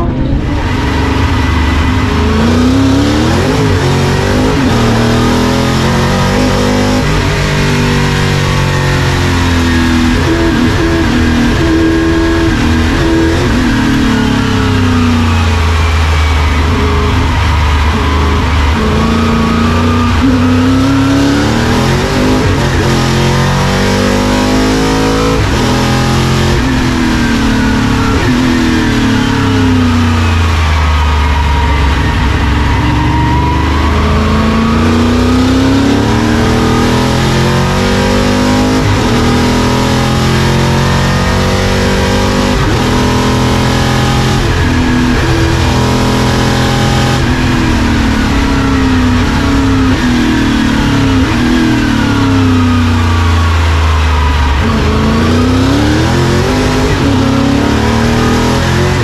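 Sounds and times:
race car engine accelerating: 0.0 - 59.0.

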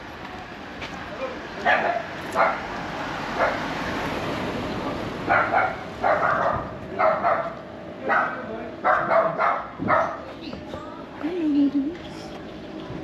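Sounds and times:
dog barking: 1.6 - 2.6, 3.4 - 3.6, 5.3 - 10.2.

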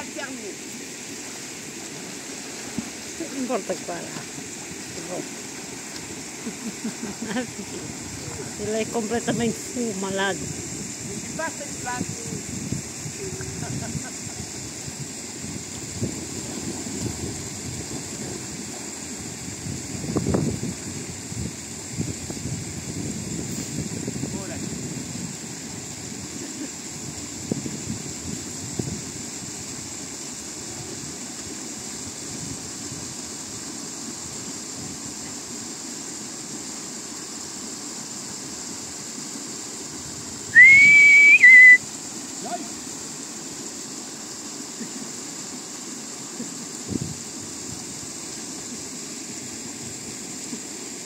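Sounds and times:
river water washing: 0.0 - 51.0
steady high hiss: 0.0 - 51.0
wind buffeting microphone: 7.5 - 29.6, 46.9 - 47.8
loud whistled note: 40.5 - 41.8.

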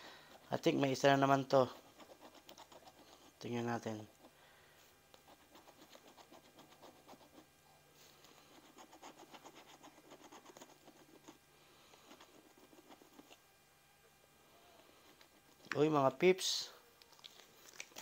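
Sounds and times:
faint scratching of lottery ticket: 0.2 - 4.4, 5.2 - 13.4.

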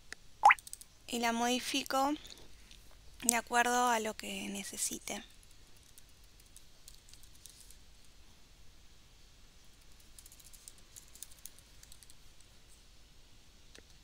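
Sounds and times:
faint keyboard typing: 4.2 - 7.8, 9.8 - 12.5.

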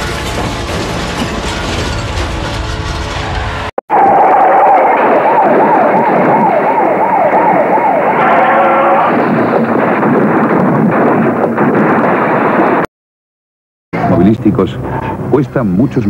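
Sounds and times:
siren wailing: 3.9 - 9.7
steady horn-like tone: 8.1 - 9.4.

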